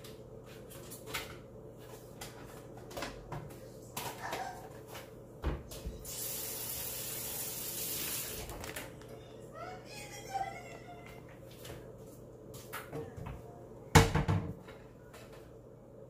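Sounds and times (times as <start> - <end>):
water running from a tap: 6.0 - 8.5
kitchen knocks and clatters: 12.7 - 15.4.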